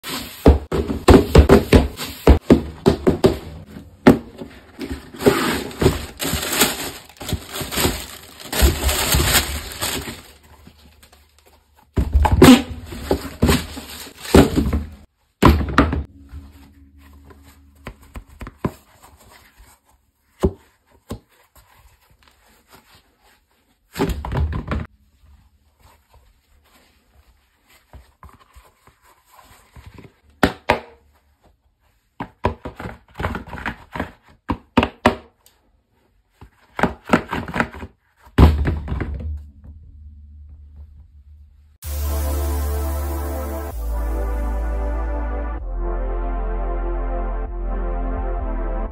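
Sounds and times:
foam rubber handled: 0:00.0 - 0:15.7
tissue paper crinkling: 0:05.0 - 0:11.6, 0:12.8 - 0:14.9.

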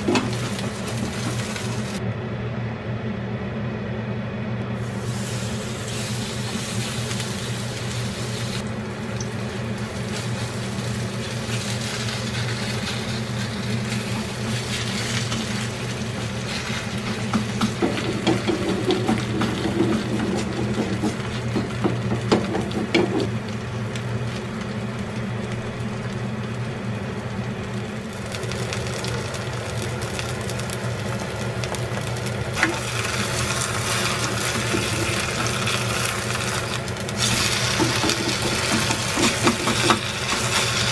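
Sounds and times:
batter frying in a pan: 0:00.0 - 0:02.0, 0:04.8 - 0:40.9
steady low hum: 0:00.0 - 0:40.9.

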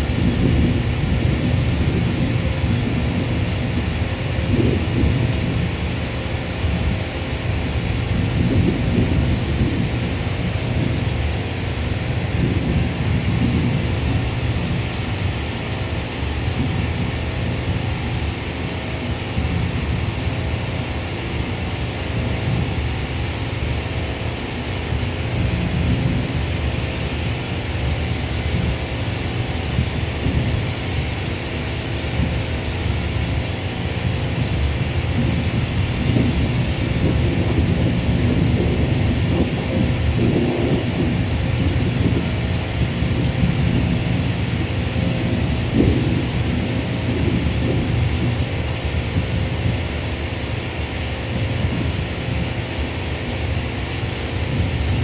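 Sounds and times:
distant jet engines droning: 0:00.0 - 0:55.0
wind buffeting microphone: 0:00.0 - 0:55.0.

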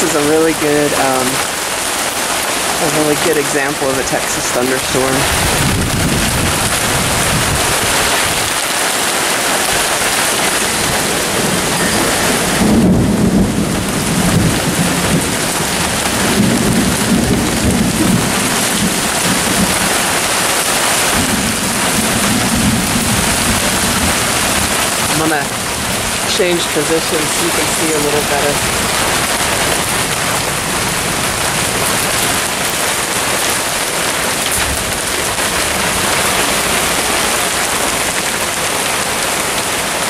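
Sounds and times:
heavy rain falling: 0:00.0 - 0:40.0
rolling thunder: 0:05.3 - 0:08.6, 0:09.6 - 0:33.5.

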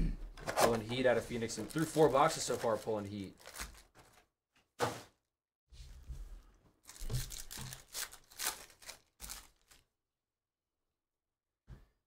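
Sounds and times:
foil wrapper tearing and crinkling: 0:00.6 - 0:04.2, 0:06.8 - 0:09.9.

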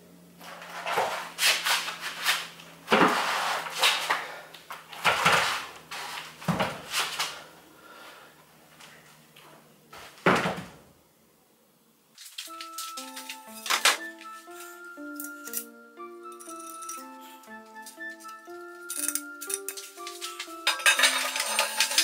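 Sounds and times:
metal engine block scraping on concrete: 0:19.6 - 0:22.0.

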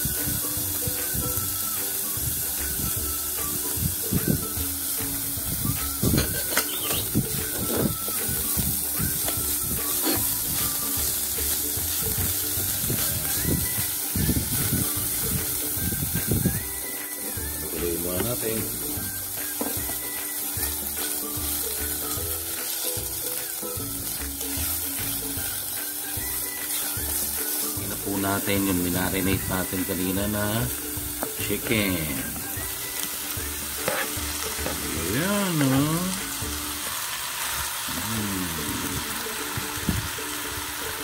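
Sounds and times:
background music: 0:00.0 - 0:41.0
food sizzling in oil: 0:00.0 - 0:41.0
spatula stirring in pan: 0:06.1 - 0:15.5, 0:26.6 - 0:27.8, 0:33.0 - 0:34.9.

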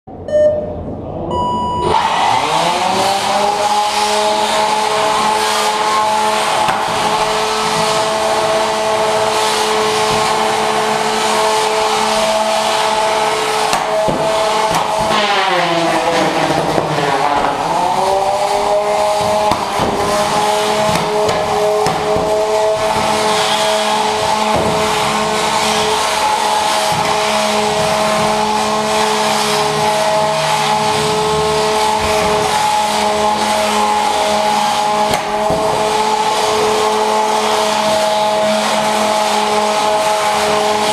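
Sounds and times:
short beep: 0:00.2 - 0:02.1.

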